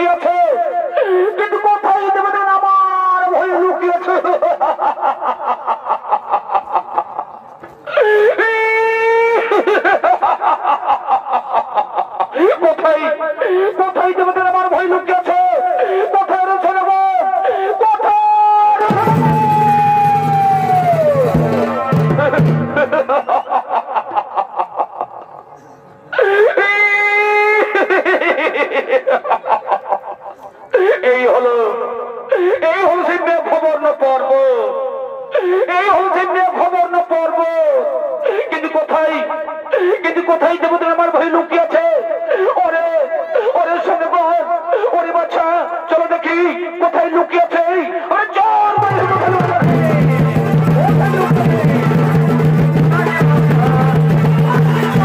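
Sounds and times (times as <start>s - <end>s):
person cackling laugh: 4.2s - 8.1s, 9.4s - 12.6s, 21.8s - 25.6s, 27.5s - 30.9s
person high held cry: 7.8s - 9.8s, 15.4s - 22.5s, 25.6s - 27.9s, 48.5s - 55.0s
reed horn playing: 49.6s - 55.0s.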